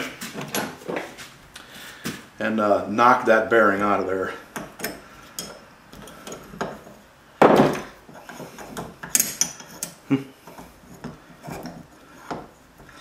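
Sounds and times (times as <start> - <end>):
loud knock: 7.4 - 7.9.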